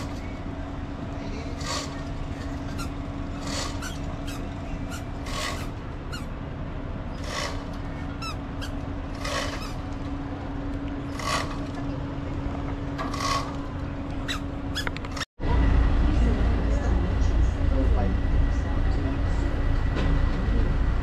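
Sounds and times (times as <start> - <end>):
rasping squeaks: 0.0 - 6.4, 7.1 - 10.2, 11.0 - 12.0, 12.8 - 15.3
ferry machinery drone: 0.0 - 21.0.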